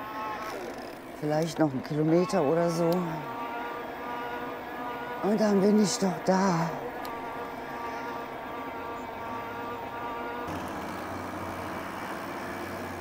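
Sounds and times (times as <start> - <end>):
electric motor whining: 10.4 - 13.0.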